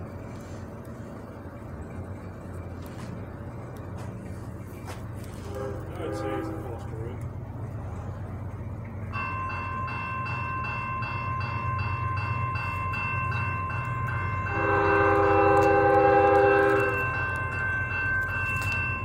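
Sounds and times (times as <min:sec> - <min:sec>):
crossing warning bell dinging: 0:00.0 - 0:19.0
train air horn blast: 0:05.3 - 0:07.1, 0:14.5 - 0:17.1.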